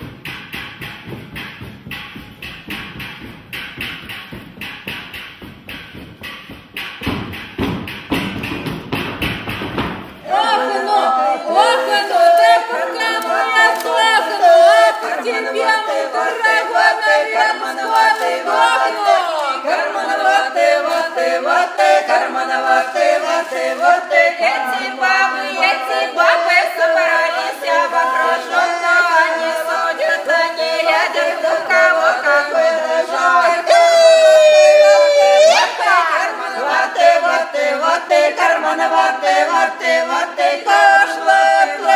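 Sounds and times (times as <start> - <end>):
women singing a cappella: 10.2 - 41.9.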